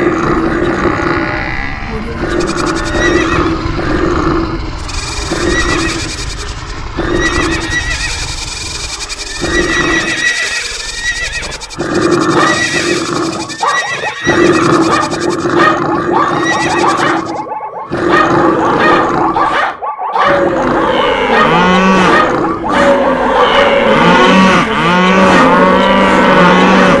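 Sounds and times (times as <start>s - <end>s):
animal calls: 0.6s - 27.0s
horse whinnies: 9.4s - 15.1s.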